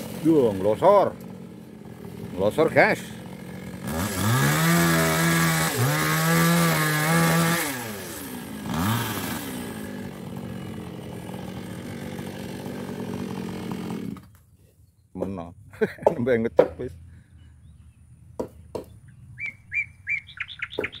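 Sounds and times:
chainsaw cutting log: 0.0 - 14.4, 16.0 - 16.9.

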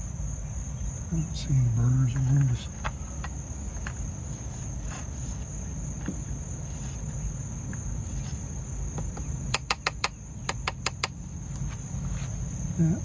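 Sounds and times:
crickets chirring: 0.0 - 13.0
sharp clicks: 9.5 - 11.6.

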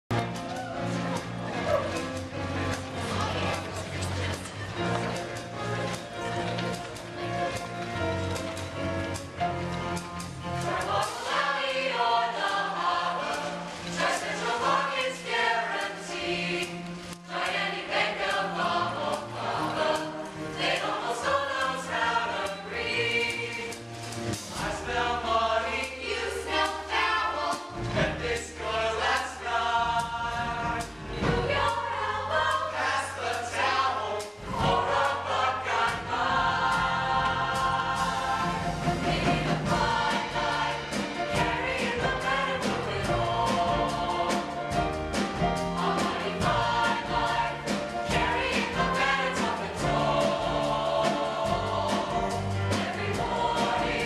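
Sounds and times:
male choir singing: 10.6 - 23.8, 24.5 - 54.0.

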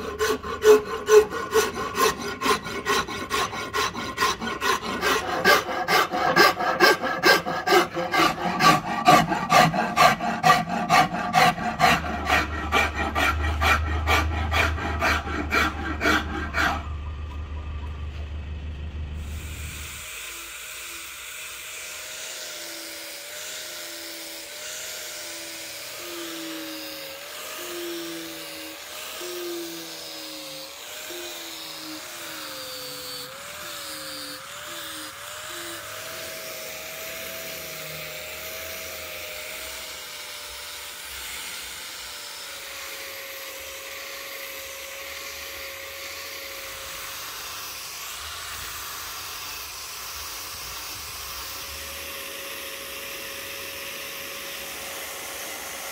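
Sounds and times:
abrasive hissing on wood: 0.0 - 16.9
angle grinder motor whine: 0.0 - 55.9.

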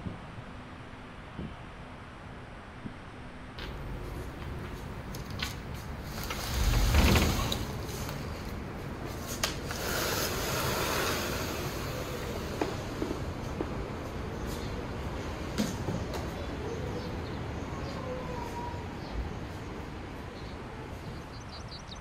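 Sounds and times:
outdoor air hiss: 0.0 - 21.3
door clicks: 3.6 - 8.6
door rumbling open: 3.6 - 13.5.

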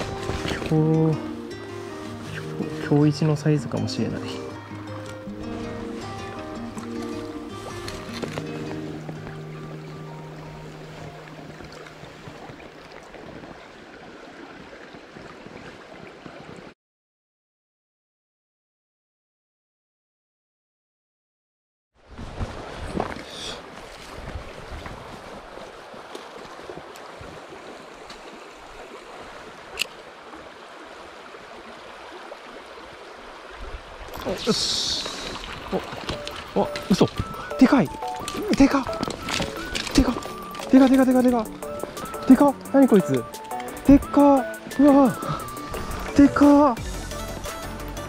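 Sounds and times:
stream flowing over rocks: 0.0 - 16.8, 22.0 - 48.0.

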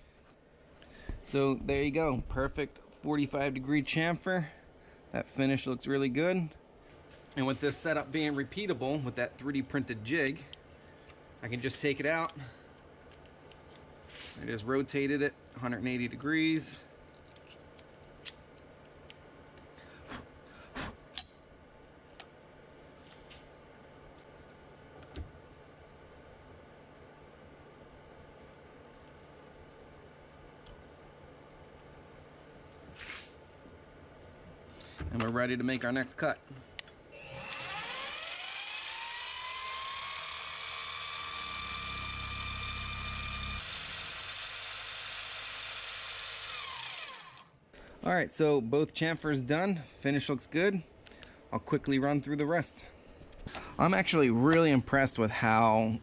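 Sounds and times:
milling machine motor whining: 37.1 - 47.5.

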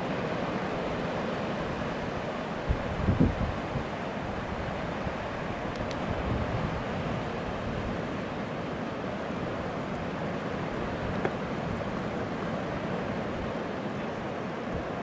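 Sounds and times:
ocean waves breaking on beach: 0.0 - 15.0.

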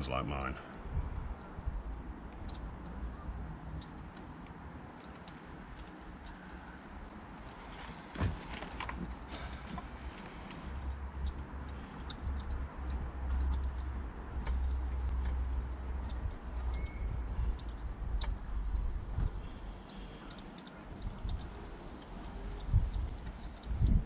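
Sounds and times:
socket ratchet clicking: 2.3 - 3.0, 10.8 - 24.0.

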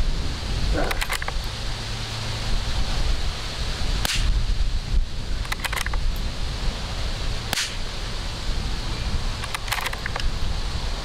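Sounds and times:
wind rumbling on microphone: 0.0 - 11.0
rifle bolt clicks: 0.9 - 1.4, 5.4 - 6.0, 9.4 - 10.3
rifle shots: 7.5 - 7.8.

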